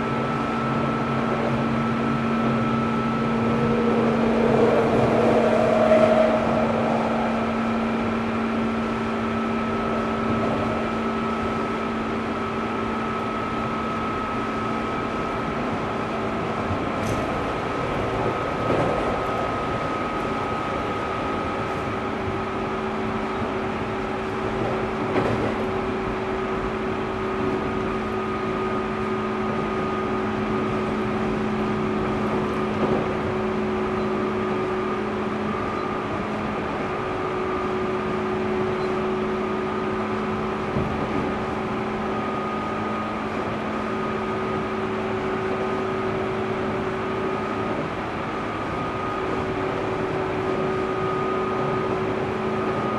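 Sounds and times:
traction motor whining hum: 0:00.0 - 0:15.7
wheels rumbling on rails: 0:00.0 - 0:52.9.

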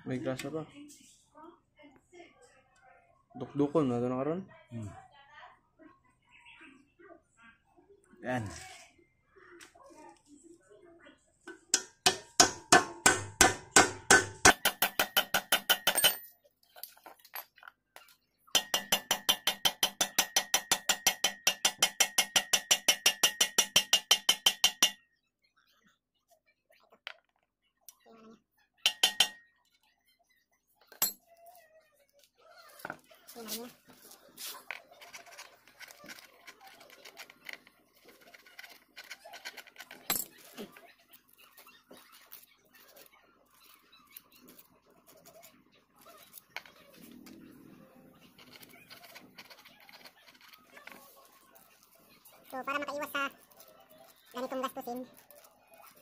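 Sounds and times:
hammer on metal ringing: 0:11.5 - 0:16.2, 0:18.6 - 0:25.0, 0:28.9 - 0:29.4.

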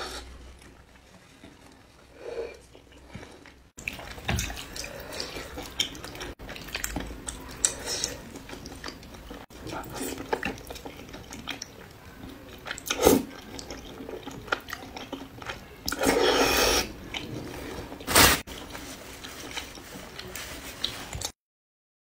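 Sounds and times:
wet chewing clicks: 0:02.6 - 0:16.4
noodle slurping: 0:15.9 - 0:18.4.

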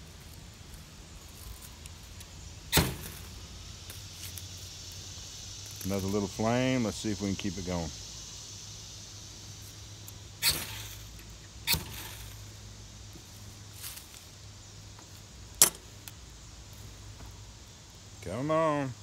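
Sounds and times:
blade scraping ferro rod: 0:10.4 - 0:11.0.

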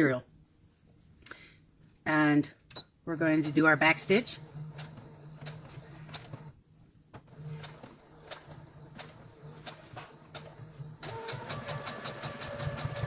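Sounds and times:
sewing machine stitching: 0:03.2 - 0:06.6, 0:07.3 - 0:13.0.

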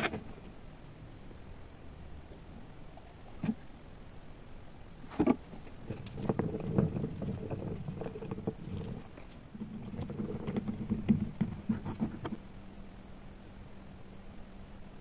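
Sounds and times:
scraping and tapping on cup: 0:05.1 - 0:12.4
stick stirring liquid in plastic cup: 0:05.1 - 0:12.4.

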